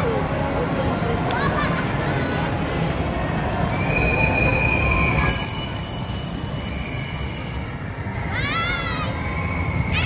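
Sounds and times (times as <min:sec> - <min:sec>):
ride mechanical rumble: 0:00.0 - 0:10.0
mechanical squeal: 0:03.0 - 0:08.3.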